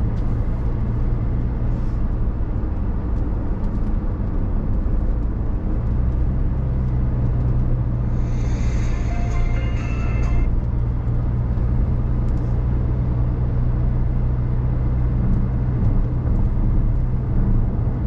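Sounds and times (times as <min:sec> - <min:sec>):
car engine and tyre rumble: 0:00.0 - 0:18.0
high-pitched whine: 0:08.0 - 0:10.6.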